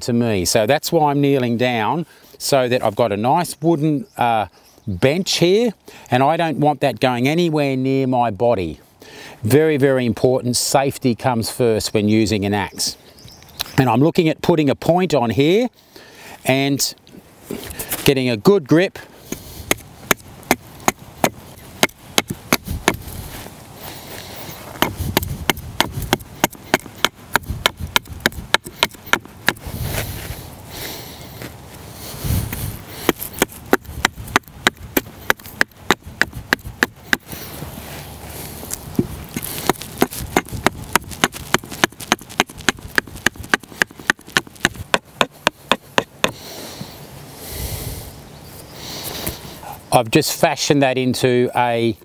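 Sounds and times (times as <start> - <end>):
axe chopping wood: 19.3 - 23.1, 24.7 - 29.7, 33.0 - 37.4, 38.9 - 46.4.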